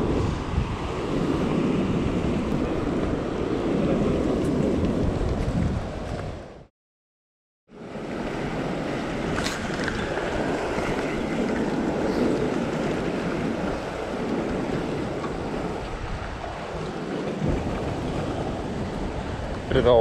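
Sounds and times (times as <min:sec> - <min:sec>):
ocean waves surging against rocks: 0:00.0 - 0:06.7, 0:07.8 - 0:20.0
wind on microphone: 0:00.0 - 0:06.7, 0:08.0 - 0:20.0.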